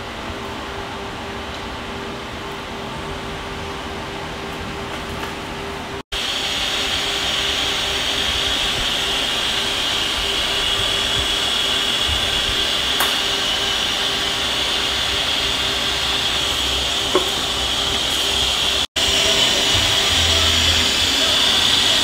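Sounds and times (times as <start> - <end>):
machine hum: 0.0 - 22.0
machine hiss: 6.2 - 22.0.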